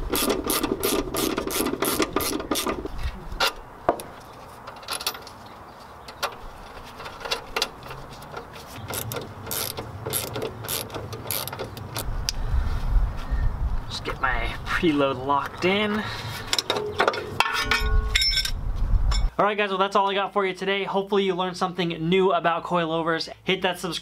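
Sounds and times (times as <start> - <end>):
ratchet wrench clicking: 0.1 - 2.8, 8.9 - 12.1
metal clinks: 16.6 - 19.3.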